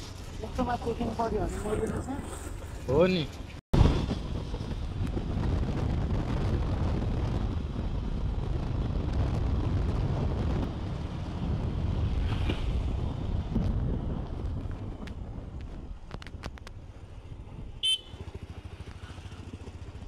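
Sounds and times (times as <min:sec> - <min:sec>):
wind buffeting microphone: 0:03.8 - 0:17.9
motorcycle engine running: 0:16.8 - 0:20.0.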